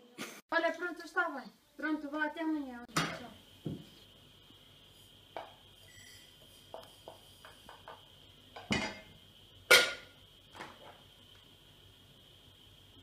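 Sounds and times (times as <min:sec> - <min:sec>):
pot lid clanking: 0:09.7 - 0:10.1.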